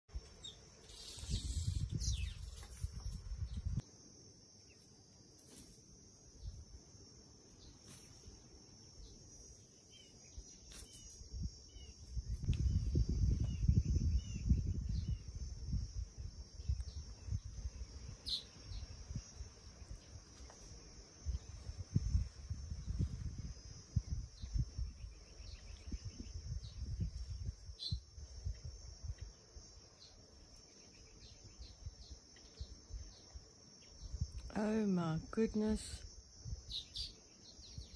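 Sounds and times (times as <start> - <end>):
faint bird chirps: 0.2 - 3.8, 9.0 - 15.4, 16.6 - 20.6, 24.0 - 28.1, 36.7 - 37.9.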